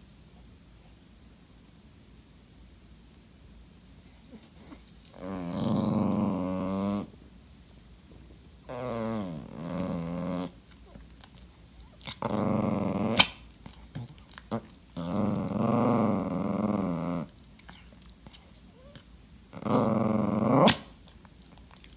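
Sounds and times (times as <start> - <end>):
dog grumbling growls: 4.2 - 7.2, 8.6 - 11.0, 11.6 - 17.9, 18.6 - 21.0.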